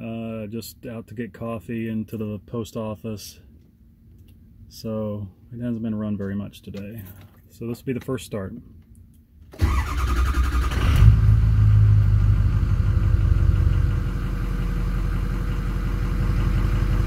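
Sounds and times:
starter cranking engine: 0:09.6 - 0:11.3
diesel engine idling: 0:09.6 - 0:17.0.

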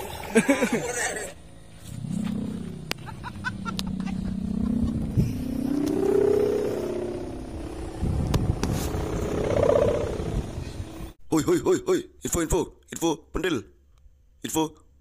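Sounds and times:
kite hummer droning: 0:00.0 - 0:11.2.

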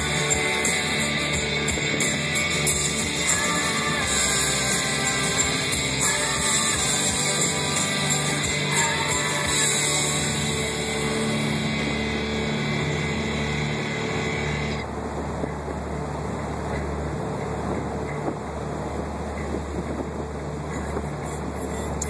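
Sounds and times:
rock music with guitar: 0:00.0 - 0:14.8
car road noise from inside: 0:00.0 - 0:22.0.

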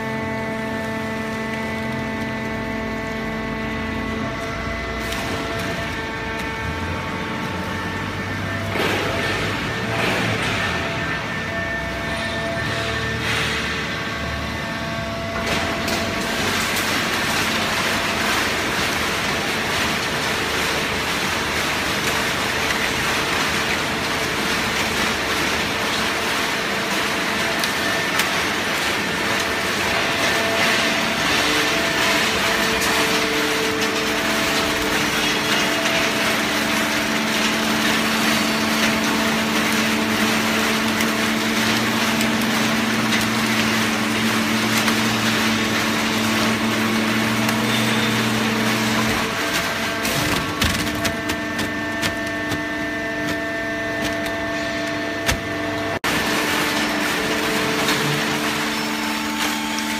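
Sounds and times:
baling press machine running: 0:00.0 - 0:59.9.

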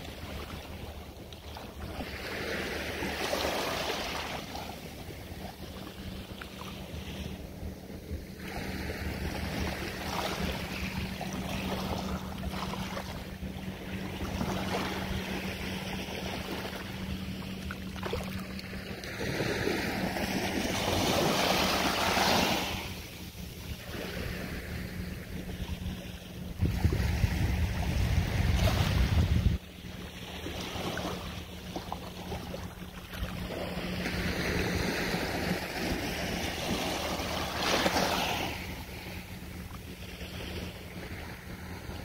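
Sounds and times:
sea water lapping: 0:00.0 - 0:42.0
wind buffeting microphone: 0:23.8 - 0:30.0.

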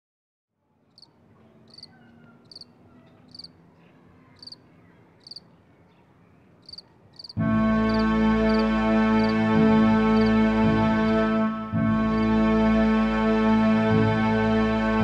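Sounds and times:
crickets chirping: 0:01.7 - 0:02.7, 0:03.3 - 0:03.6, 0:04.4 - 0:04.6, 0:05.2 - 0:05.4, 0:06.6 - 0:08.6
music: 0:07.4 - 0:15.0.

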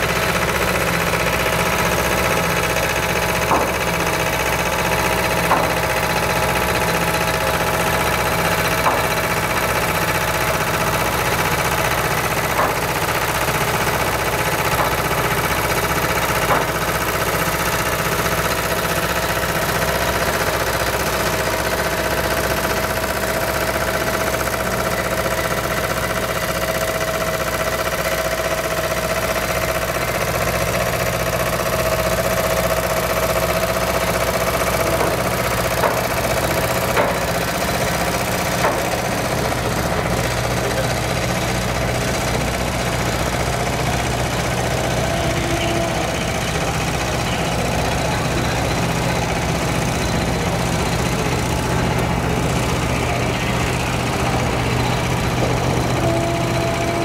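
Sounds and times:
diesel truck engine running: 0:00.0 - 0:57.0.

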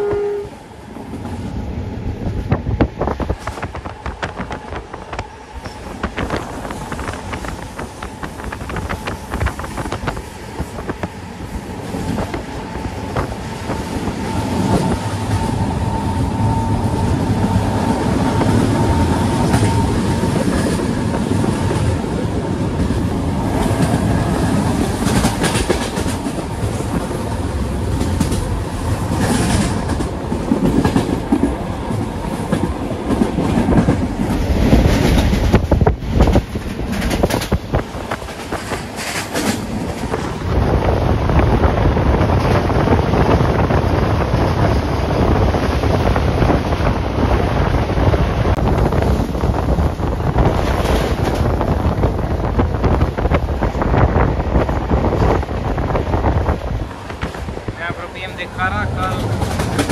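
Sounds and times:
train rolling noise and wind: 0:00.0 - 0:59.9
wind buffeting microphone: 0:00.0 - 0:59.9
train wheels clicking over rail joints: 0:18.2 - 0:40.5, 0:58.6 - 0:59.9.

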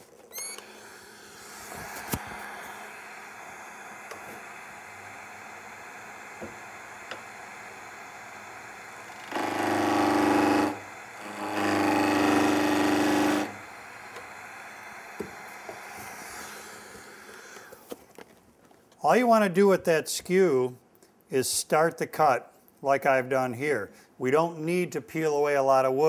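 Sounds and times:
wood lathe running: 0:00.6 - 0:17.8.

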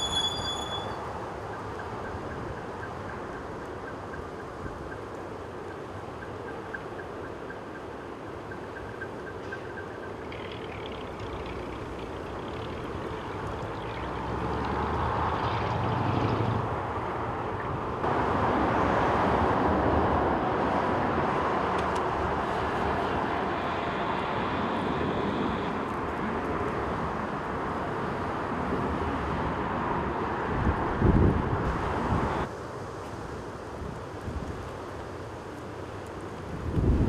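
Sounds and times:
wind on microphone: 0:17.6 - 0:32.6, 0:36.4 - 0:37.0.

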